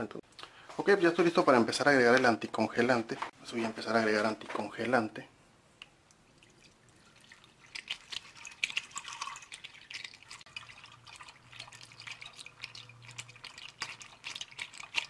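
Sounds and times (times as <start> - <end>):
liquid pouring into a funnel: 6.0 - 15.0
splashing and gurgling: 6.3 - 15.0.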